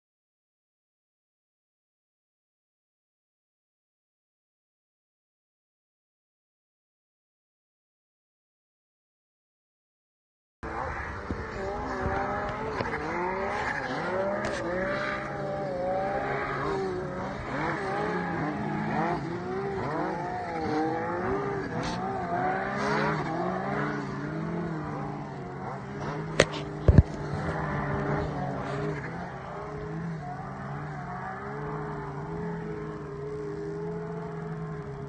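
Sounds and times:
snowmobile engine revving: 10.6s - 35.0s.

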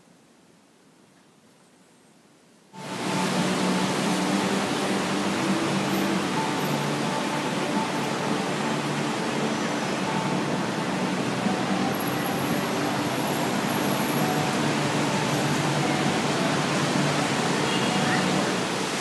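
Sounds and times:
road and traffic noise: 2.8s - 19.0s.

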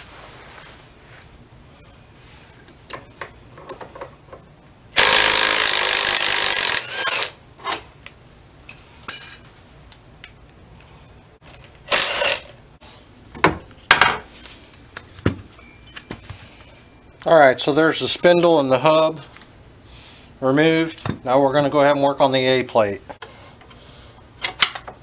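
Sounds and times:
cordless power tool running: 5.0s - 7.3s.

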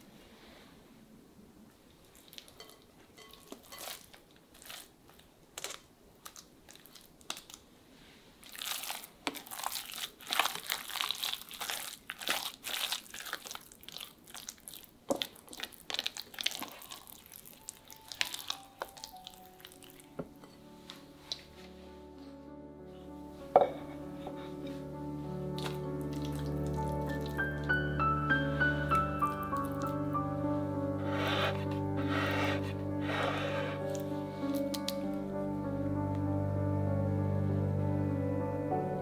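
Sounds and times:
spatula squelching and scraping: 31.0s - 34.1s.

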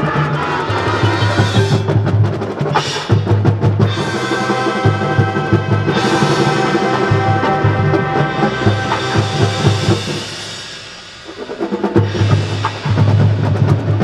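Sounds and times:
woodwinds and brass: 0.0s - 14.0s.

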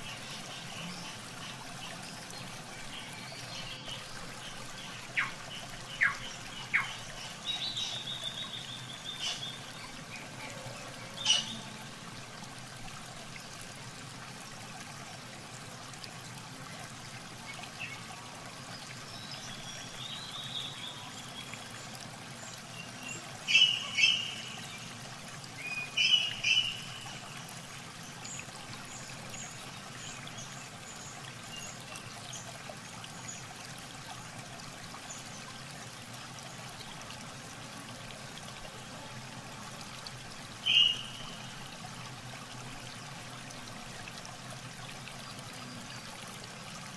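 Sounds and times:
water trickling and splashing: 0.0s - 46.9s
birds chirping: 0.1s - 10.0s, 22.8s - 24.9s, 25.7s - 27.2s, 40.6s - 41.6s.

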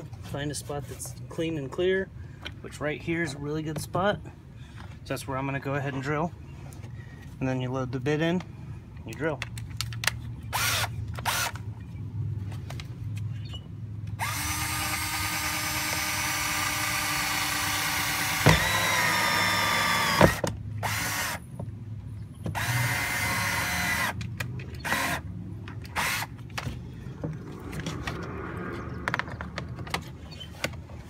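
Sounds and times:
power drill boring through plastic: 10.6s - 11.6s, 14.2s - 21.4s, 22.5s - 24.2s, 24.8s - 25.2s.

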